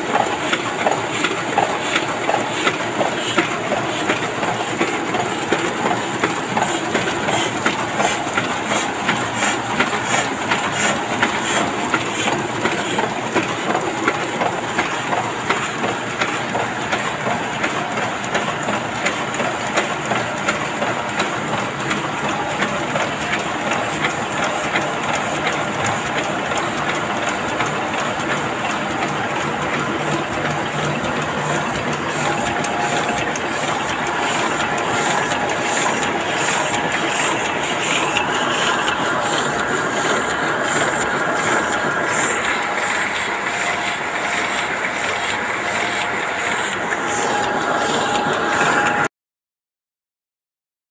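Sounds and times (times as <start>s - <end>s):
printing press clatter: 0.0s - 49.1s.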